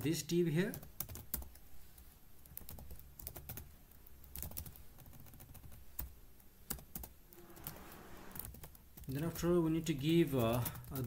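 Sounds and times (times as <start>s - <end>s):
computer keyboard typing: 0.7s - 1.6s, 2.4s - 9.2s, 10.4s - 11.0s.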